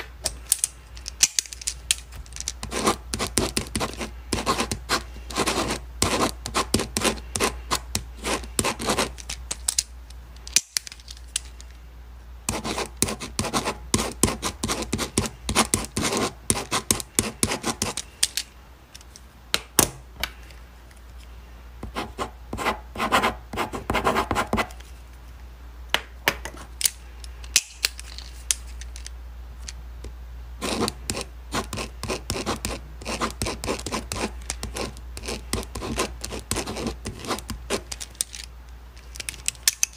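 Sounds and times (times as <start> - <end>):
faint low hum: 0.0 - 39.9
pen scratching on paper: 2.6 - 9.2, 12.5 - 18.0, 21.8 - 24.8, 30.6 - 37.9.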